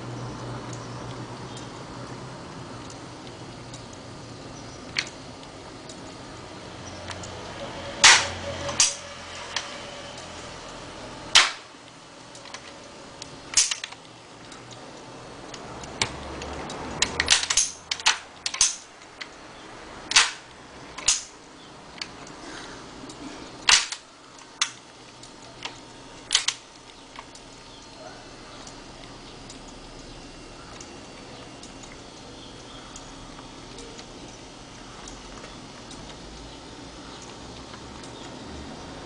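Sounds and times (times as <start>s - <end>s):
gears clicking and clunking: 0.0s - 28.0s
faint low hum: 17.9s - 39.0s.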